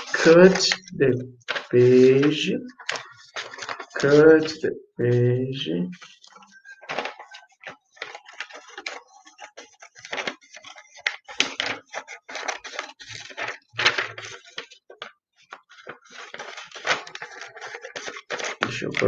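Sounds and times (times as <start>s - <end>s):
paper rustling and crackling: 0.0s - 4.6s, 5.9s - 19.0s.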